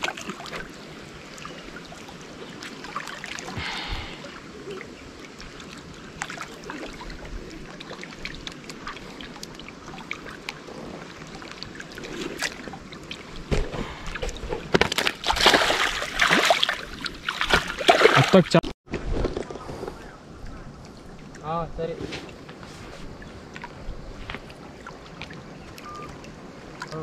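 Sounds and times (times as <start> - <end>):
water lapping against stone: 0.0 - 18.6.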